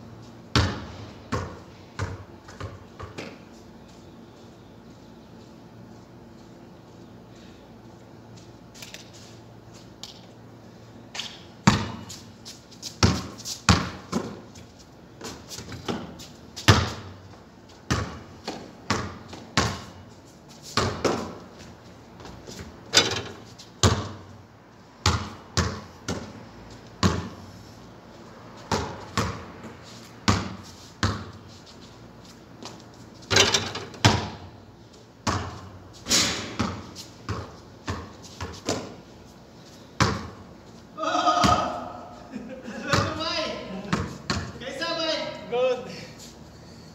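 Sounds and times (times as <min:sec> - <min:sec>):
basketball bouncing on concrete: 0:00.5 - 0:03.4, 0:11.1 - 0:12.1, 0:13.0 - 0:14.5, 0:15.2 - 0:17.2, 0:17.8 - 0:20.0, 0:20.8 - 0:21.4, 0:22.2 - 0:24.2, 0:25.0 - 0:27.4, 0:28.6 - 0:31.4, 0:32.6 - 0:34.5, 0:35.2 - 0:39.0, 0:40.0 - 0:40.4, 0:41.4 - 0:41.8, 0:42.9 - 0:43.2, 0:43.9 - 0:44.6.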